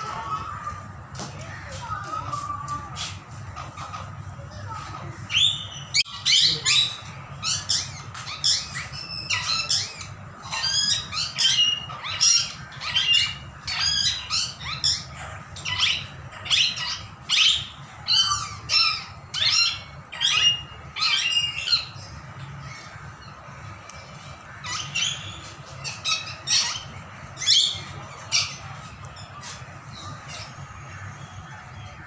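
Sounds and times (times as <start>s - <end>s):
parakeets squawking: 0.0s - 32.0s.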